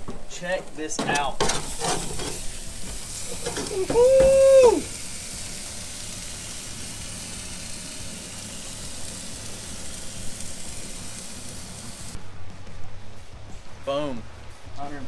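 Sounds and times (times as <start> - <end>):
meat sizzling on a grill: 0.3 - 12.2.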